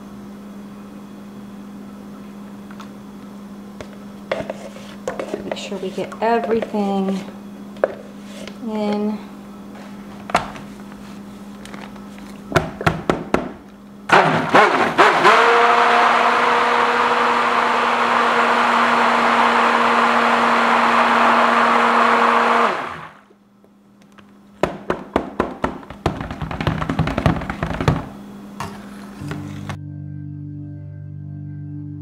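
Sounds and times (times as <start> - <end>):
stick blender running: 14.1 - 23.3, 25.2 - 28.2.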